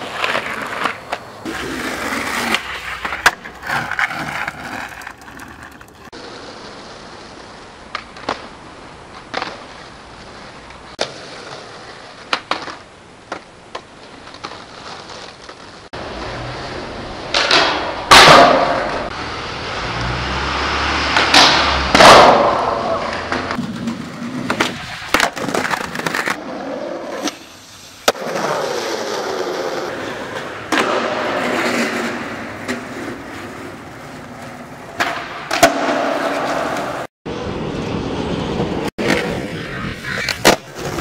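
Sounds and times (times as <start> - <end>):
skateboard wheels rolling on concrete: 0.0 - 41.0
skateboard clacks and landings: 7.8 - 9.9, 17.2 - 19.1, 21.1 - 26.4, 28.0 - 37.1, 40.1 - 41.0.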